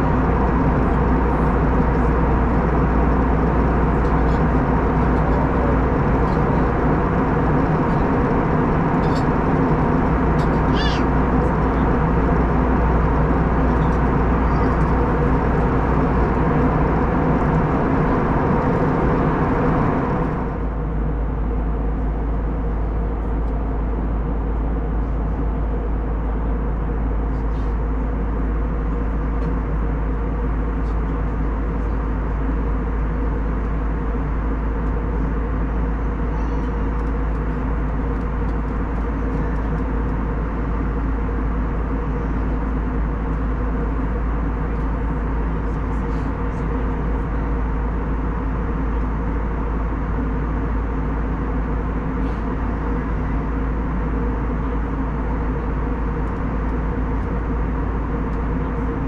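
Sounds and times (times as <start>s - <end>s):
cabin air rush: 0.0s - 20.8s
low engine hum: 0.0s - 59.0s.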